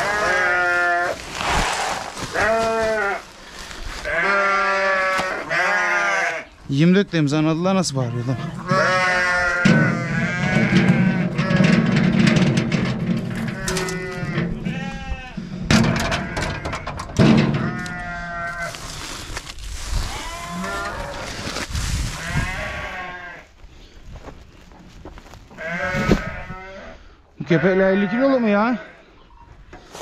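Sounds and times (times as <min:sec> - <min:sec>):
sheep bleating: 0:00.0 - 0:01.2, 0:02.3 - 0:03.3, 0:04.0 - 0:06.6, 0:07.9 - 0:11.9, 0:13.4 - 0:16.8, 0:20.0 - 0:21.4, 0:22.2 - 0:23.5, 0:25.6 - 0:29.0.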